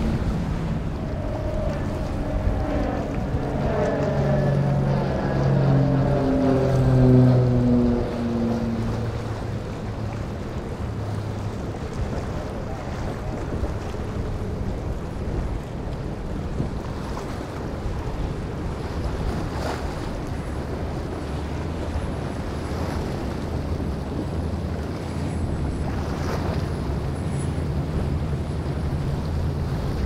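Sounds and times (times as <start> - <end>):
rushing spray of bow wave: 0.0 - 14.9
boat engine drone: 0.0 - 30.0
water splashes: 0.0 - 30.0
wind on microphone: 0.0 - 30.0.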